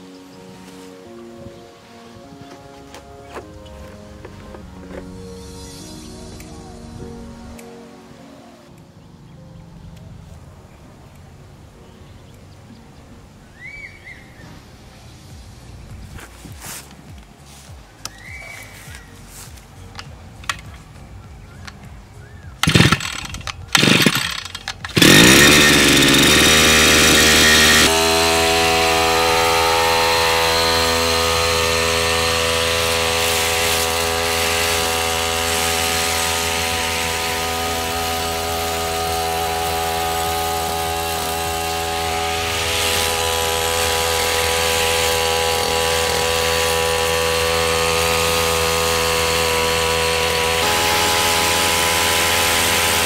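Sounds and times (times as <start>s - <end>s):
brush cutter engine starting and running: 3.4s - 7.7s, 16.7s - 20.9s, 21.5s - 53.0s.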